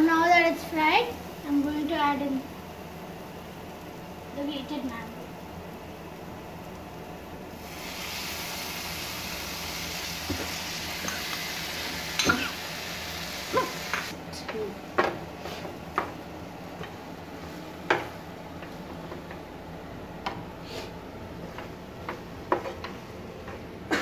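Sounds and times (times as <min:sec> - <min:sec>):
food sizzling in hot oil: 0:00.0 - 0:14.2.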